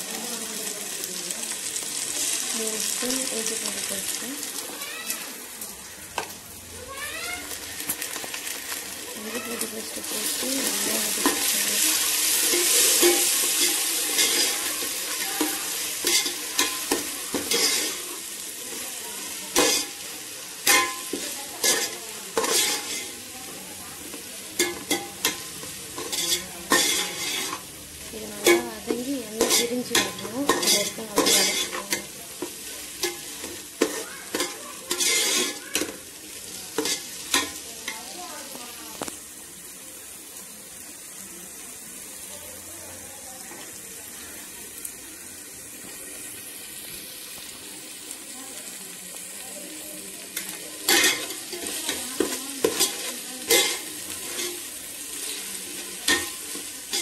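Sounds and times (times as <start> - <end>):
onions sizzling in hot oil: 0.0 - 57.0
metal spoon scraping and knocking pot: 15.2 - 18.0, 20.6 - 23.1, 24.6 - 27.6, 28.4 - 32.1, 33.0 - 35.9, 50.9 - 54.6.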